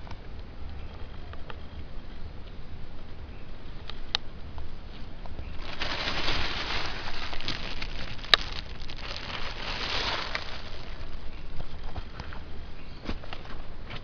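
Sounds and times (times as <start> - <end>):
plastic bag rustling: 5.5 - 11.5.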